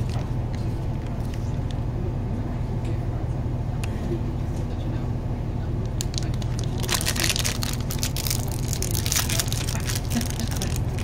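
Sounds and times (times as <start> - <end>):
plastic wrapper crinkling and tearing: 6.0 - 11.0.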